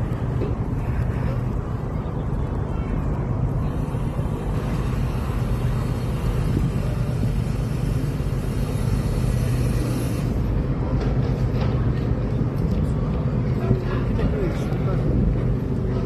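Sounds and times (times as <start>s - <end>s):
boat engine idling: 0.0s - 12.2s.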